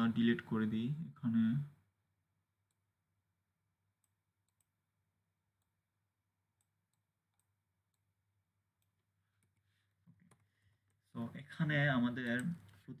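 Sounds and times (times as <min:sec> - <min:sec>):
computer mouse clicks: 0:04.0 - 0:04.8, 0:12.1 - 0:12.8.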